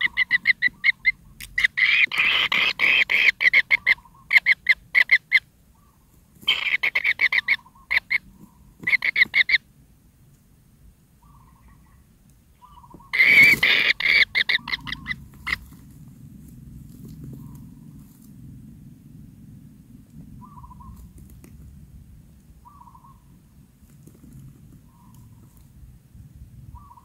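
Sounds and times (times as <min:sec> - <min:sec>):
nestlings begging calls: 0:00.0 - 0:09.6, 0:12.6 - 0:15.8, 0:20.4 - 0:21.1, 0:22.6 - 0:23.3, 0:26.8 - 0:27.0.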